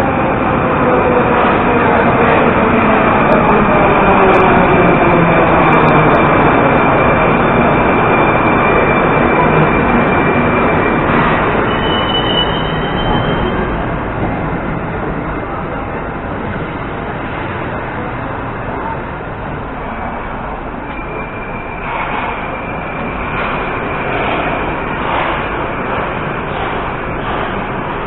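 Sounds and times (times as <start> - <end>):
train running rumble: 0.0 - 28.0
train brakes squealing: 3.0 - 14.0, 20.8 - 28.0.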